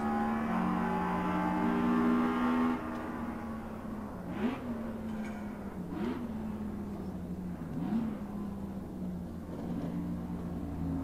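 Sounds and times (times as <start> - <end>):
racing engine revving: 0.0 - 5.0.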